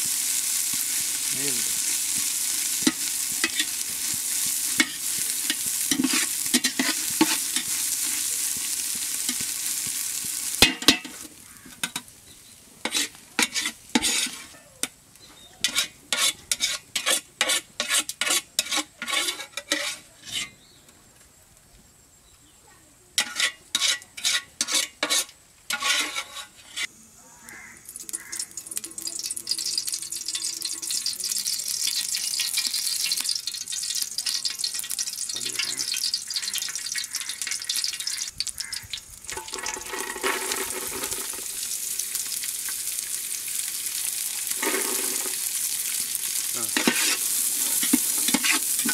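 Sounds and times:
oil sizzling in pot: 0.0s - 20.5s, 23.2s - 48.9s
metal spatula scraping metal plate: 4.7s - 8.1s, 12.8s - 14.6s, 15.6s - 20.6s, 23.2s - 26.9s, 39.3s - 41.5s, 44.5s - 45.4s, 46.7s - 48.9s.

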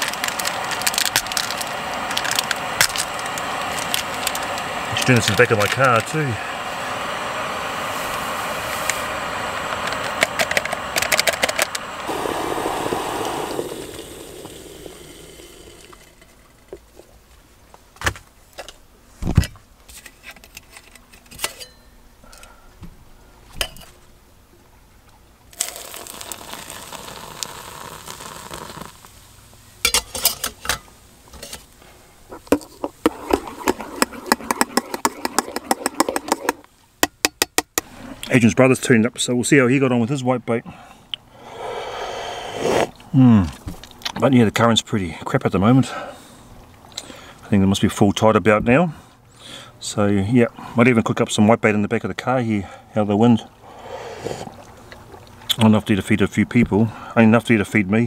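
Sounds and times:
gas stove burner hissing: 0.0s - 16.8s, 25.6s - 30.8s, 32.4s - 36.7s, 41.3s - 43.0s
pot and gear knocking: 32.4s - 37.9s.

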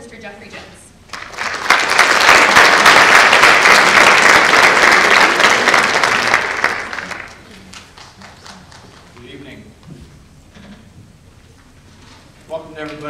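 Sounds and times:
audience applauding: 1.1s - 9.2s.

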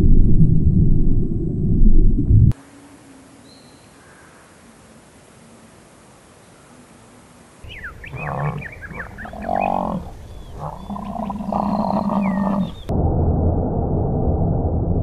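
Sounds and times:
birds chirping: 6.3s - 12.9s
camel groaning: 8.0s - 12.9s.

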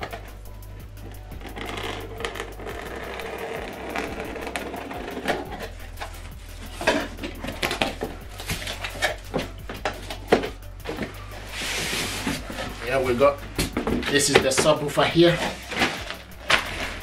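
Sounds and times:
blade slitting packing tape: 15.7s - 17.0s.

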